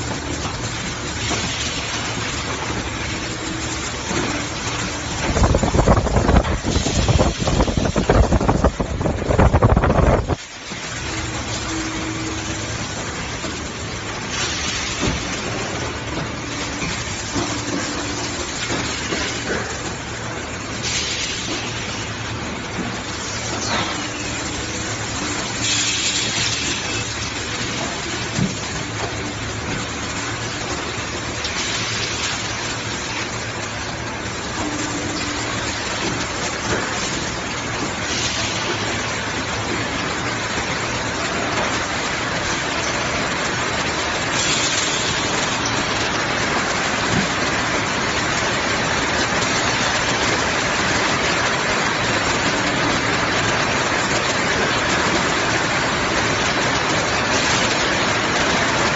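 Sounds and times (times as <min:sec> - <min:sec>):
machine rushing hiss: 0:04.8 - 0:08.6, 0:20.6 - 0:28.2.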